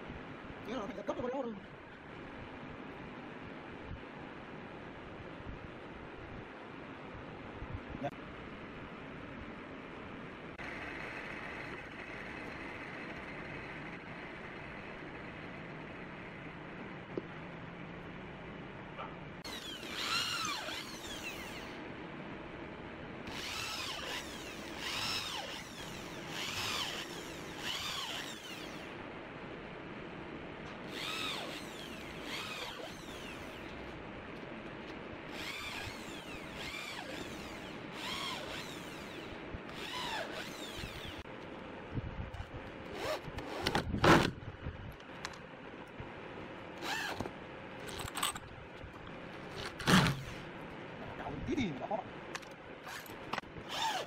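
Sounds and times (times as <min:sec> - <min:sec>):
cordless drill driving screws: 0:19.5 - 0:21.8, 0:23.3 - 0:29.0, 0:30.9 - 0:33.8, 0:35.3 - 0:41.2, 0:46.8 - 0:47.3, 0:52.9 - 0:54.0.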